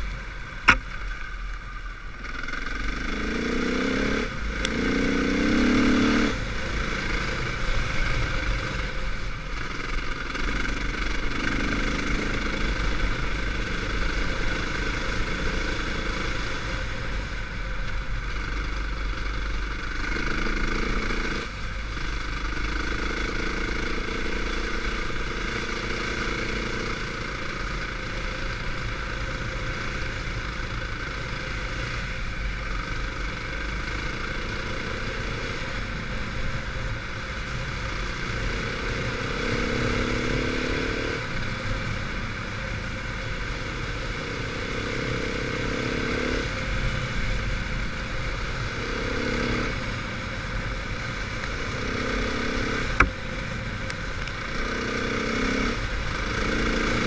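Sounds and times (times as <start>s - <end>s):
dirt bike engine revving: 2.2s - 7.4s.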